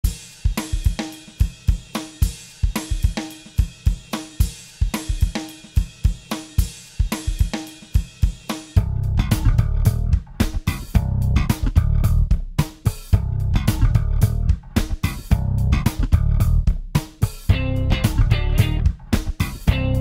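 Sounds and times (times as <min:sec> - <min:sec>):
drum kit beat: 0:00.0 - 0:20.0
bass and guitar: 0:08.8 - 0:12.3, 0:13.2 - 0:16.7, 0:17.5 - 0:20.0.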